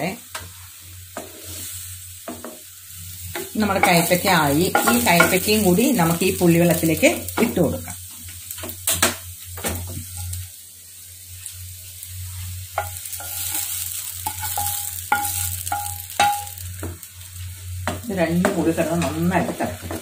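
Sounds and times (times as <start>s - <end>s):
curry sizzling: 0.0s - 20.0s
spatula scraping frying pan: 0.4s - 1.8s, 3.3s - 7.6s, 12.3s - 16.6s
spatula knocking ringing pan: 3.3s - 5.5s, 12.8s - 16.9s.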